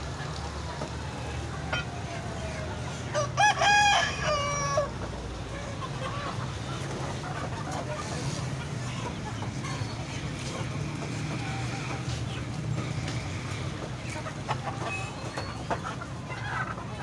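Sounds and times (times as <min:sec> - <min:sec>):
rooster crowing: 0:03.1 - 0:04.9.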